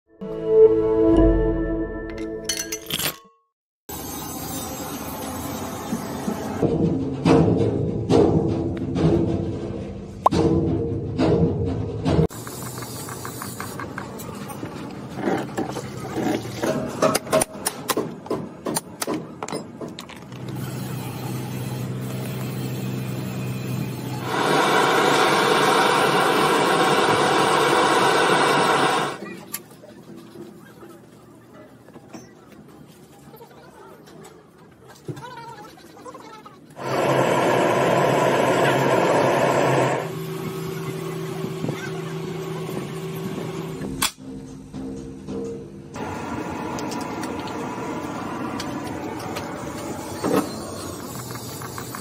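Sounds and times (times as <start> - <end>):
gas torch flame hissing: 24.1 - 29.2, 36.8 - 40.1, 46.0 - 52.0
low mechanical hum: 36.8 - 52.0.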